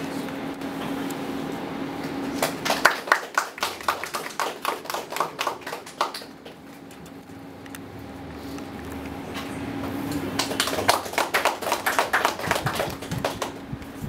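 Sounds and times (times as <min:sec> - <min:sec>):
hands clapping in applause: 0:02.4 - 0:06.6, 0:10.3 - 0:13.7.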